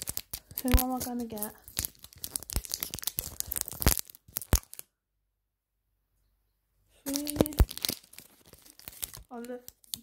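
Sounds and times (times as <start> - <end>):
plastic wrapping crinkling and tearing: 0.0 - 4.9, 7.0 - 10.0.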